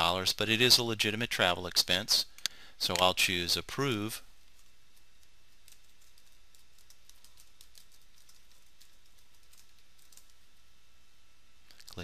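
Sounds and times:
computer keyboard typing: 5.6s - 10.4s.

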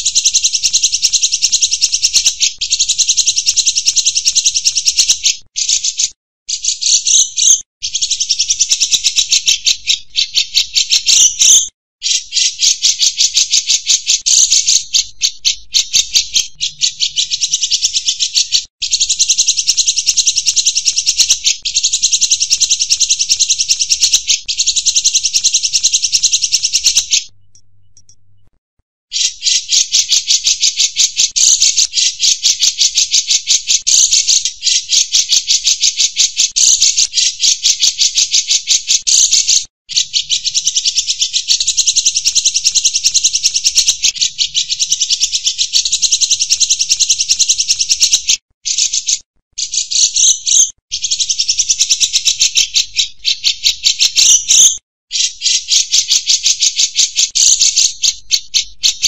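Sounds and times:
insect trilling: 0.0s - 27.3s.

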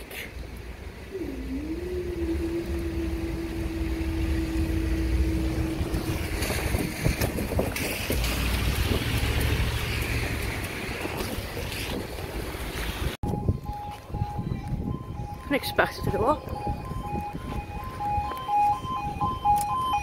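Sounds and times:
wind buffeting microphone: 0.6s - 20.0s
barrier mechanism humming: 1.1s - 8.4s.

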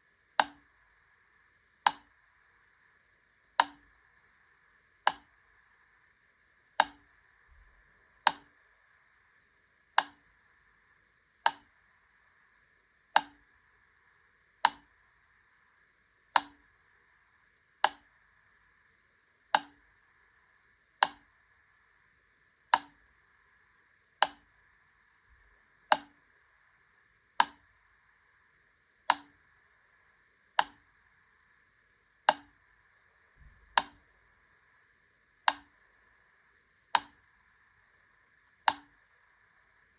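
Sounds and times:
metronome ticking slowly: 0.3s - 0.8s, 1.8s - 2.2s, 3.5s - 4.0s, 5.0s - 5.5s, 6.7s - 7.6s, 8.2s - 8.6s, 9.9s - 10.3s, 11.4s - 11.8s, 13.1s - 13.5s, 14.6s - 15.0s, 16.3s - 16.8s, 17.8s - 18.2s, 19.5s - 19.9s, 21.0s - 21.4s, 22.7s - 23.1s, 24.2s - 24.6s, 25.8s - 26.3s, 27.3s - 27.8s, 29.0s - 29.5s, 30.5s - 30.9s, 32.2s - 32.6s, 33.6s - 34.1s, 35.4s - 35.8s, 36.9s - 37.3s, 38.6s - 39.2s.

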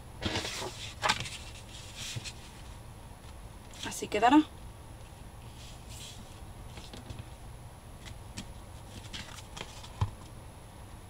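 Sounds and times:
paper rustling: 0.2s - 2.7s, 5.5s - 7.2s, 8.0s - 10.3s.

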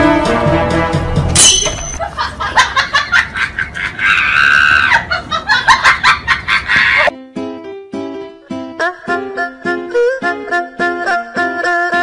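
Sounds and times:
shrill laughing and shrieking: 3.7s - 7.1s.

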